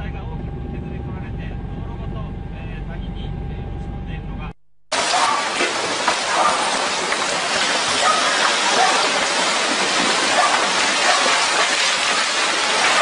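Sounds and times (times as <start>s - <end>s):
rushing hissing water: 5.0s - 13.0s.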